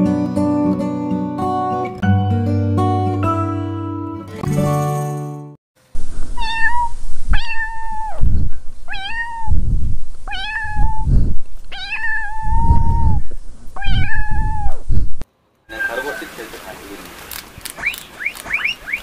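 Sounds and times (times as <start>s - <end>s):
kitten meowing: 6.4s - 8.3s, 8.9s - 9.6s, 10.2s - 13.2s, 13.8s - 14.8s
low thumps and rumbles: 7.0s - 15.2s.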